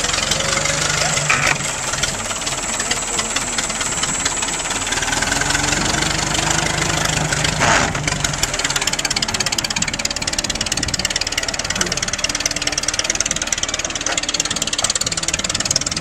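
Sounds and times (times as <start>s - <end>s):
tractor engine running: 0.0s - 16.0s.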